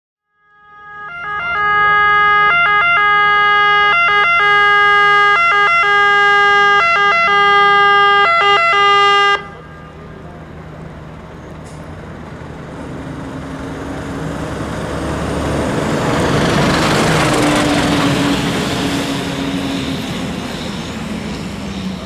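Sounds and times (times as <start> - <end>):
two-tone fire engine siren: 0.2 - 10.6
road noise: 0.4 - 22.0
truck engine: 0.7 - 22.0.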